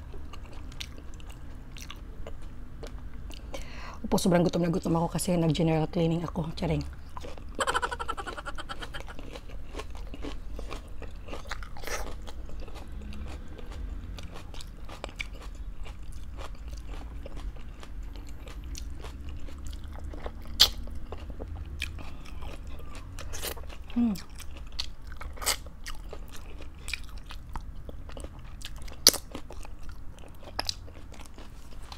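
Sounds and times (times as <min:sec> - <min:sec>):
person crunching food: 0:06.9 - 0:31.9.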